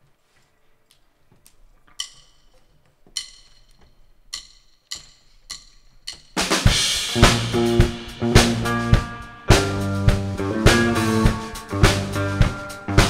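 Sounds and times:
drumsticks clicking together: 0:00.9 - 0:06.6
rock band playing: 0:06.3 - 0:13.0.

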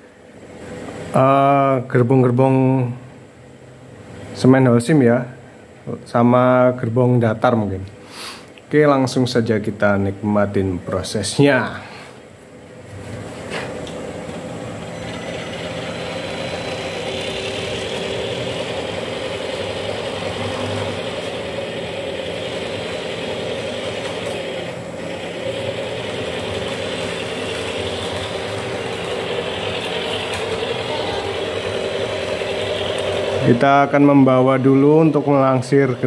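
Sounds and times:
model train motor whirring: 0:14.9 - 0:36.0.

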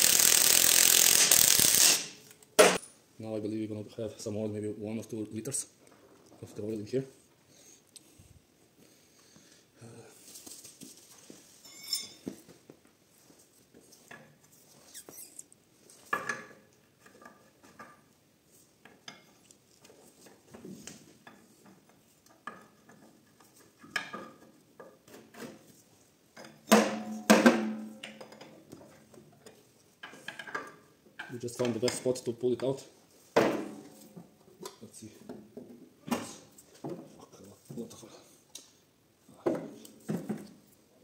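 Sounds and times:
ringing metal clanks: 0:11.6 - 0:12.2.

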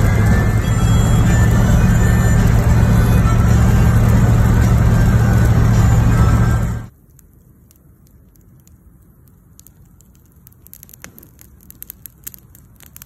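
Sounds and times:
low steady rumble: 0:00.0 - 0:10.0
campfire crackling: 0:00.0 - 0:13.0.

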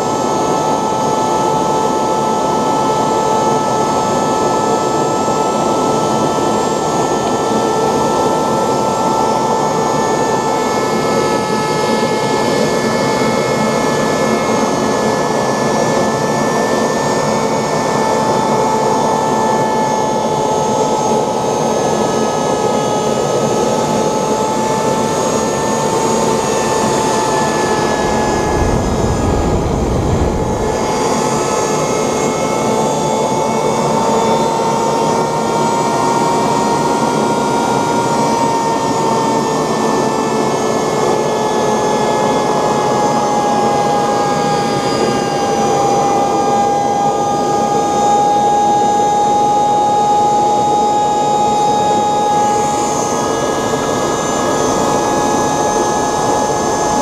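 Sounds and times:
jet engine roar with high whine: 0:00.0 - 0:57.0
brief low rumble: 0:27.6 - 0:31.2.

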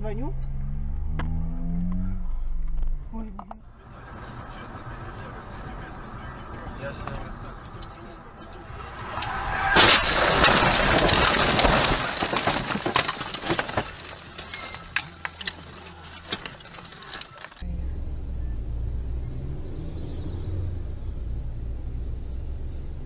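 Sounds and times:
car driving hum: 0:00.0 - 0:23.0
branches scraping against car: 0:08.6 - 0:17.6
car crashing through brush: 0:08.7 - 0:17.6.

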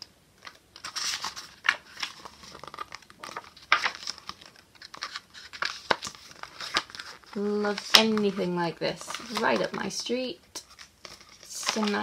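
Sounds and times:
book pages turning: 0:00.4 - 0:12.0.

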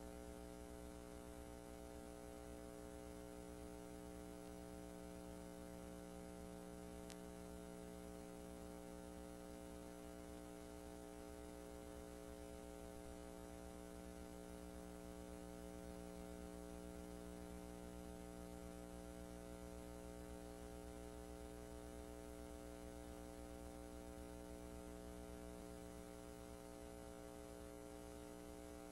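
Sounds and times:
electrical mains hum: 0:00.0 - 0:28.9
faint tick: 0:07.0 - 0:07.3.

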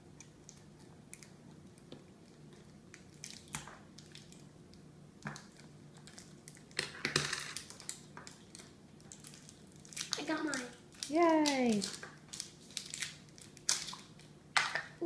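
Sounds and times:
plastic and foil wrapping crinkling: 0:05.3 - 0:15.0.

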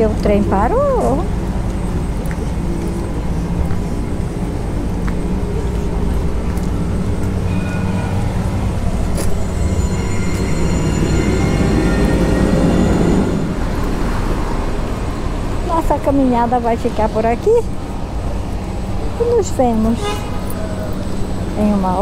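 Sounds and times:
train rumble: 0:00.0 - 0:22.0
tram motor hum: 0:00.0 - 0:22.0
high whining tones: 0:01.8 - 0:15.6.

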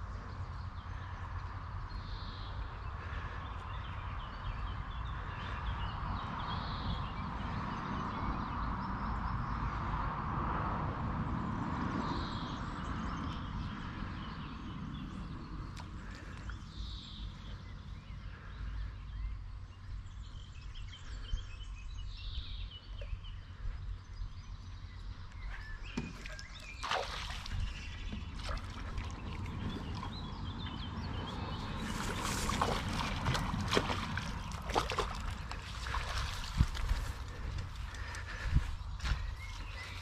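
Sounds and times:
fish splashing in water: 0:26.0 - 0:38.2.

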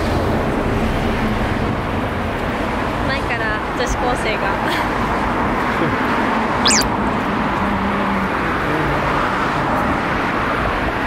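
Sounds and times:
brief high squeak: 0:06.6 - 0:06.9.

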